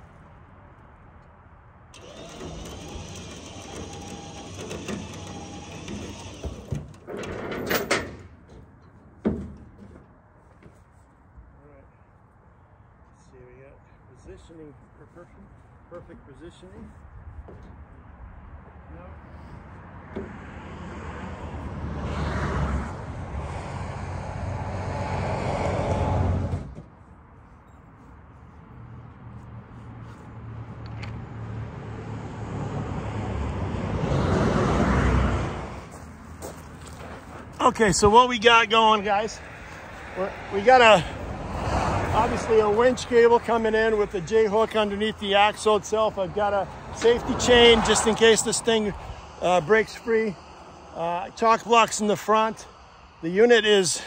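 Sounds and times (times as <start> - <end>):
highway traffic passing: 0.0 - 54.0
mechanical whir: 2.0 - 6.7.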